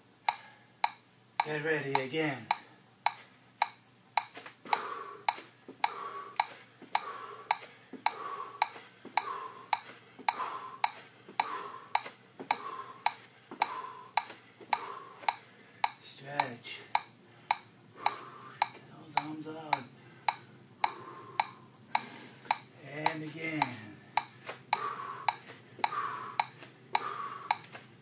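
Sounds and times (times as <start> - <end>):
metronome ticking: 0.3 - 27.7.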